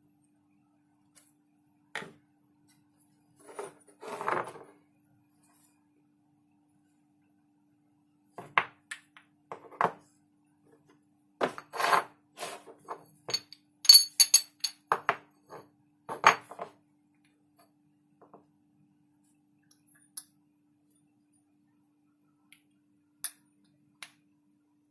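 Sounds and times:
faint steady hum: 0:00.0 - 0:11.6.

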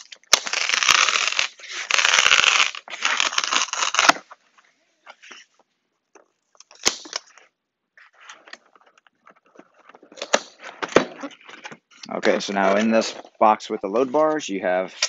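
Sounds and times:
cardboard ripping: 0:00.0 - 0:04.3
cardboard rustling: 0:07.2 - 0:14.4.

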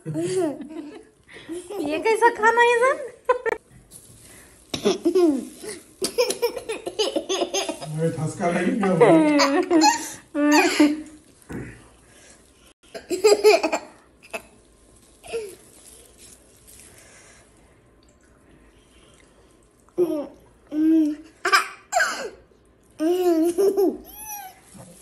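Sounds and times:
toddler laughing and giggling: 0:04.8 - 0:07.9, 0:23.0 - 0:24.6.

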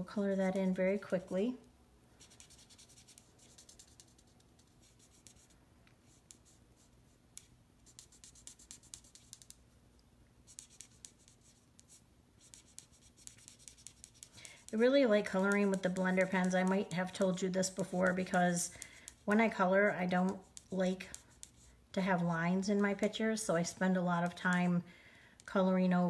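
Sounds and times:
felt tip marker scratching on card: 0:02.2 - 0:09.6, 0:10.5 - 0:19.4, 0:20.1 - 0:21.8.

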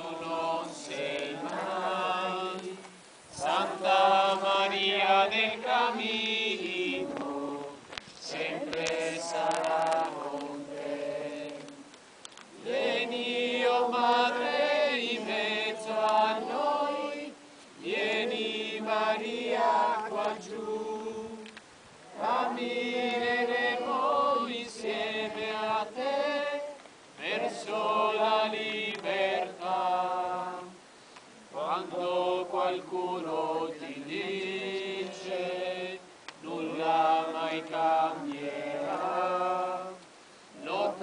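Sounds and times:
voices singing a slow hymn: 0:00.0 - 0:41.0.

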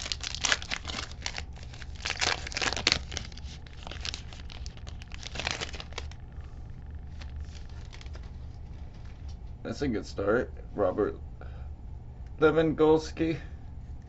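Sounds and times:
foil wrapper crinkling: 0:00.0 - 0:06.2, 0:07.1 - 0:09.3
low steady hum: 0:00.0 - 0:14.0.

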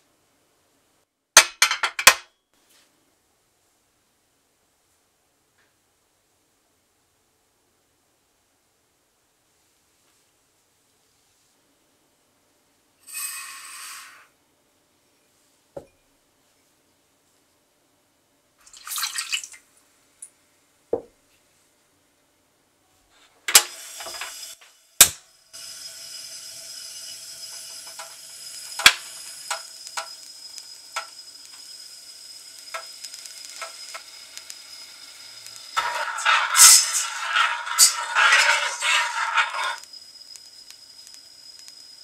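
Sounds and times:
gas burner hissing: 0:13.0 - 0:14.3, 0:23.5 - 0:42.0
water splashing onto sugar: 0:18.6 - 0:19.6
metal spoon scraping pan: 0:35.8 - 0:39.9.

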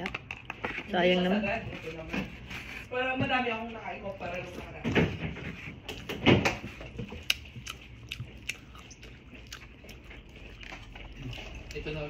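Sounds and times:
chewing: 0:05.5 - 0:12.0.

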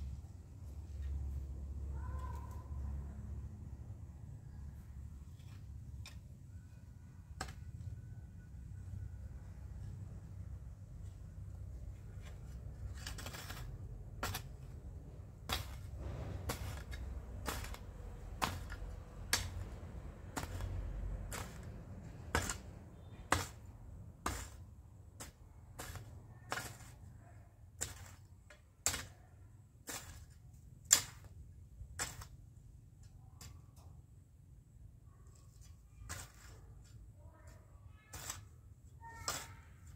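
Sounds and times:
hoe blade chopping into soil: 0:12.3 - 0:14.8, 0:15.4 - 0:19.7, 0:20.3 - 0:21.7, 0:22.3 - 0:24.6, 0:25.2 - 0:27.0, 0:27.8 - 0:28.2, 0:29.8 - 0:32.3.

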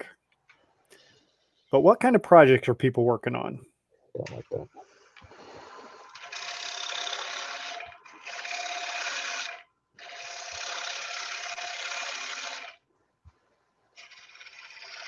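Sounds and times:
lathe tool cutting wood: 0:05.3 - 0:12.8, 0:14.0 - 0:15.0.

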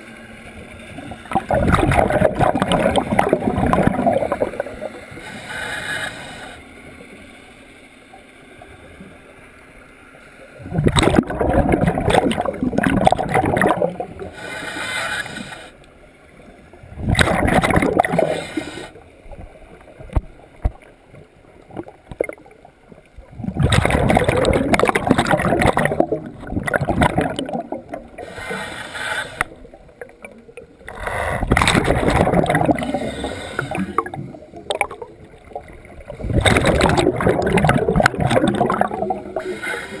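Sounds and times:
diver exhaling bubbles: 0:01.3 - 0:05.1, 0:10.6 - 0:14.4, 0:16.9 - 0:19.0, 0:23.3 - 0:40.0
regulator hissing inhalations: 0:14.3 - 0:15.8, 0:18.2 - 0:19.0, 0:28.2 - 0:29.6, 0:32.8 - 0:34.0.

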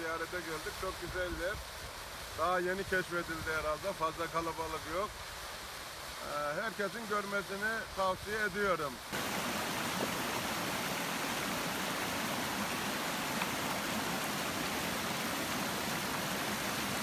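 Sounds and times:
waterfall rushing: 0:08.8 - 0:17.0.

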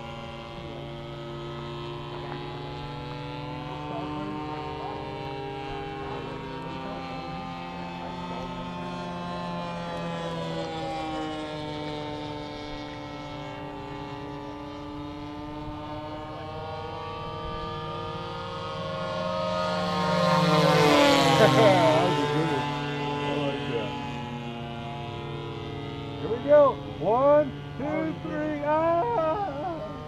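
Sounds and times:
model airplane engine droning: 0:00.0 - 0:30.0.

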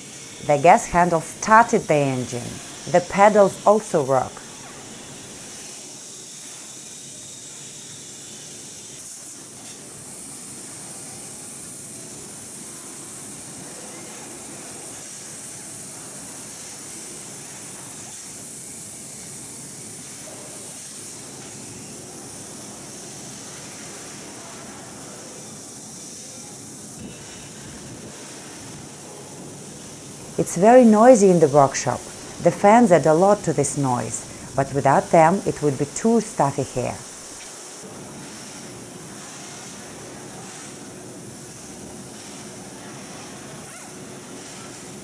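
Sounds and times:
factory workshop din: 0:00.1 - 0:05.7, 0:27.0 - 0:43.1.

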